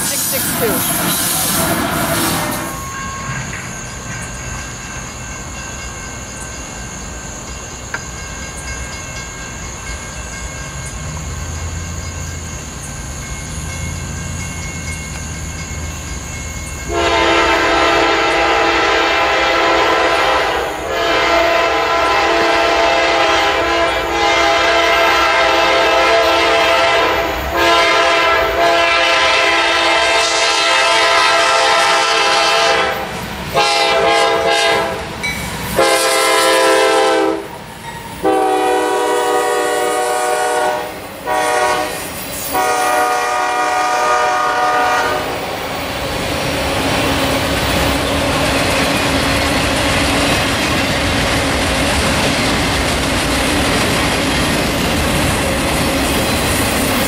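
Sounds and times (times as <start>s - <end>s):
low rumble of rail traffic: 0.0s - 57.0s
locomotive air horn blasts: 16.9s - 35.0s, 35.8s - 37.5s, 38.2s - 45.4s.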